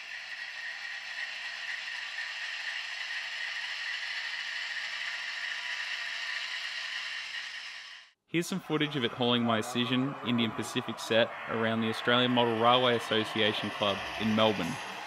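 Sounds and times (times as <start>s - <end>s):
model train rattling hiss: 0.0s - 8.1s, 12.3s - 15.0s.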